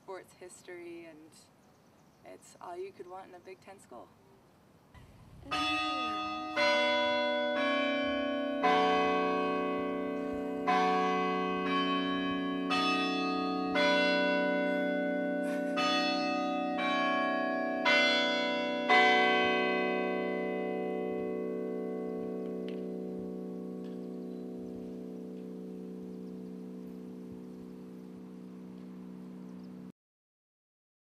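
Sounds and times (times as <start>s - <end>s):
tower bells ringing: 5.5s - 29.9s.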